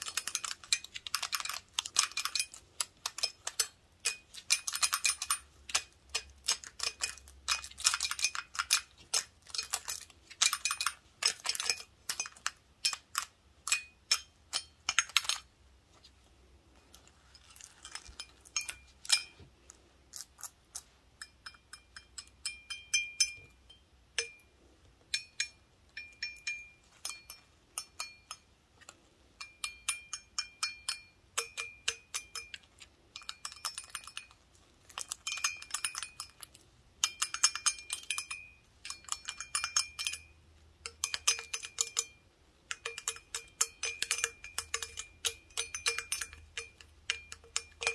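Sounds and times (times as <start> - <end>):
glass ringing: 17.7 - 19.4, 21.2 - 24.5, 25.1 - 28.5, 29.4 - 32.6, 37.0 - 47.9
toothpicks tapping glass stein: 34.9 - 47.9.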